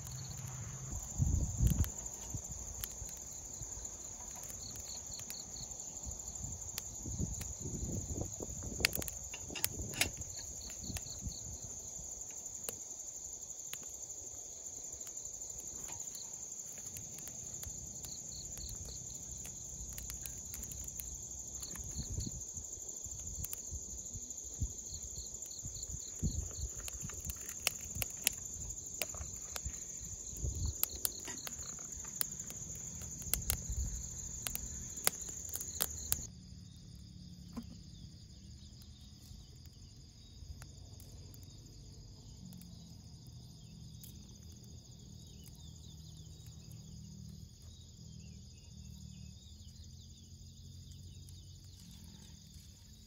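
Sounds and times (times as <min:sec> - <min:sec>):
campfire crackling: 0:00.0 - 0:53.0
crickets chirring: 0:00.0 - 0:53.0
twigs being handled: 0:25.3 - 0:36.2.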